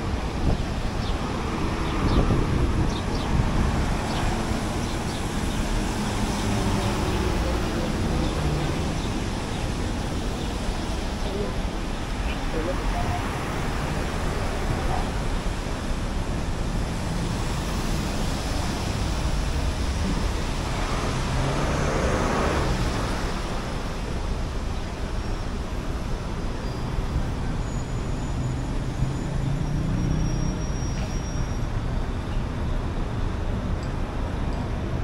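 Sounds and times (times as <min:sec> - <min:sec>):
traffic on wet pavement: 0:00.0 - 0:35.0
vehicle passing close: 0:16.8 - 0:23.8.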